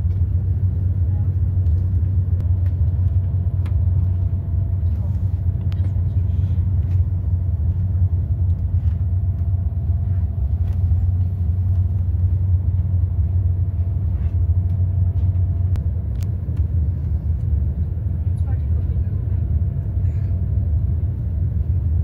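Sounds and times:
train cabin rumble: 0:00.0 - 0:22.0.

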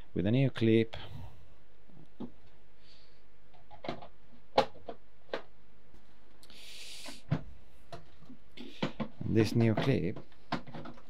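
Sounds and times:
brief hiss: 0:06.5 - 0:07.2
hard plastic clicks and knocks: 0:07.3 - 0:11.0.

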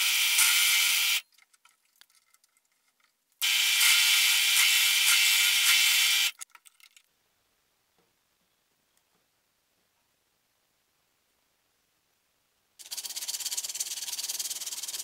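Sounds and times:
drill press drilling steel: 0:00.0 - 0:01.2, 0:03.4 - 0:06.3.

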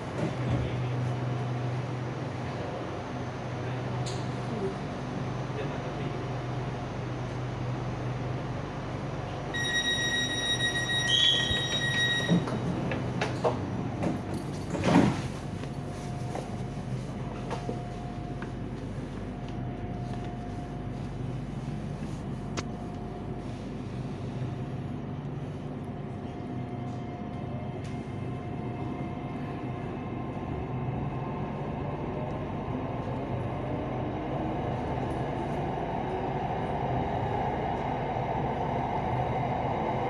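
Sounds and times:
electric train humming: 0:00.0 - 0:14.8
door-closing warning beep: 0:09.6 - 0:12.6.

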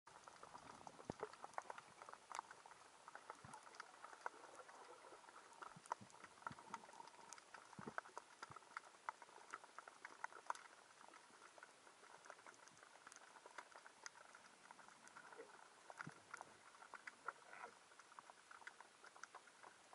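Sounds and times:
low steady hiss: 0:00.1 - 0:19.9
underwater clicks and pops: 0:00.6 - 0:10.7.

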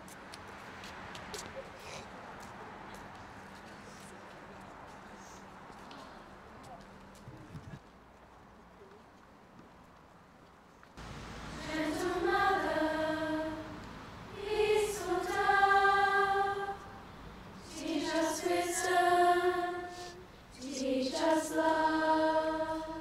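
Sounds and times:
girls singing a hymn: 0:11.0 - 0:23.0.

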